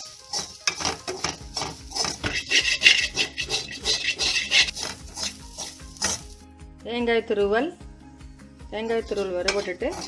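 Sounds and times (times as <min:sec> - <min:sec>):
metal spatula scraping a pan: 0:00.0 - 0:06.4, 0:09.0 - 0:10.0.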